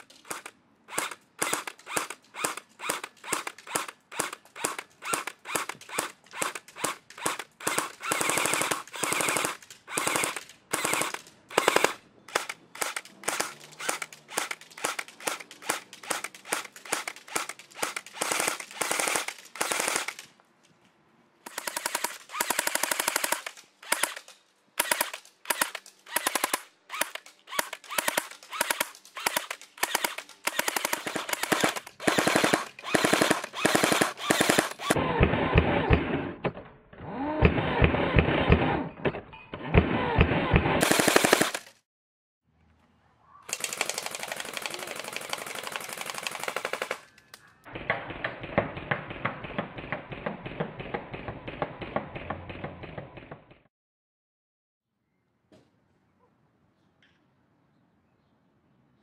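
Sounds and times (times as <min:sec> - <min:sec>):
airsoft gun firing full auto: 0:00.3 - 0:20.2, 0:21.5 - 0:24.2, 0:24.8 - 0:35.9, 0:39.8 - 0:41.8, 0:43.5 - 0:47.1.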